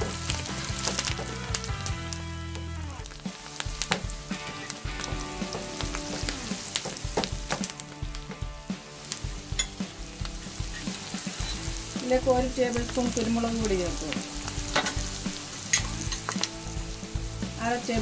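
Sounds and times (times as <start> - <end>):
vegetables sizzling in oil: 0.0 - 18.0
wooden spatula scraping pan: 9.3 - 12.1.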